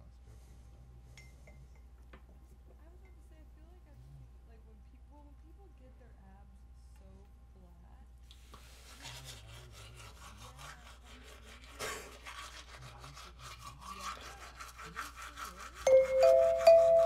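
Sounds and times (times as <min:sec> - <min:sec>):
toothbrush scrubbing teeth: 0:08.3 - 0:17.0
chiming mallet percussion music: 0:15.9 - 0:17.0.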